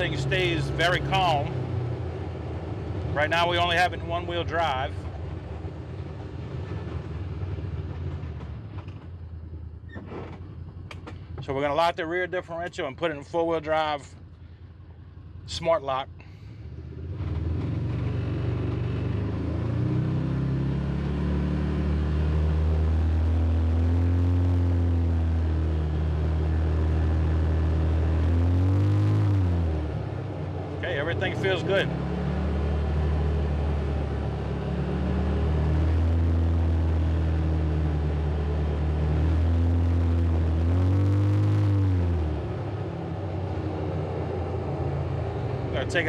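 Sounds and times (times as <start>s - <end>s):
engine pulling away: 16.2s - 46.0s.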